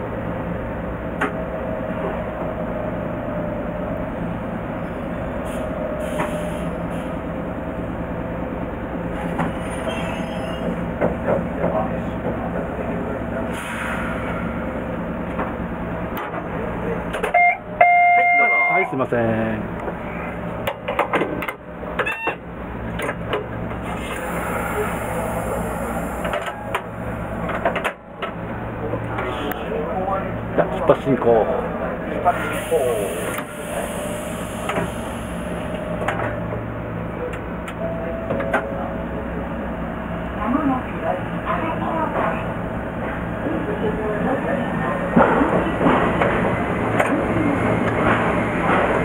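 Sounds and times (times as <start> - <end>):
railcar cab mechanical hum: 0.0 - 49.0
air brake hiss: 5.4 - 7.1, 13.5 - 14.5, 24.0 - 26.2, 32.3 - 35.6.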